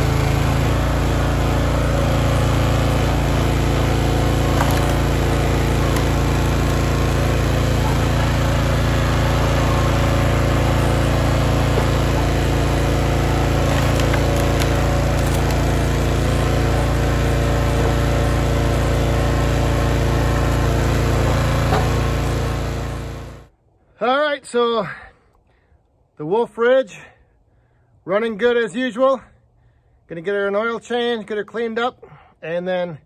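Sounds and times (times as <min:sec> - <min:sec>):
small gasoline engine running: 0:00.0 - 0:23.5.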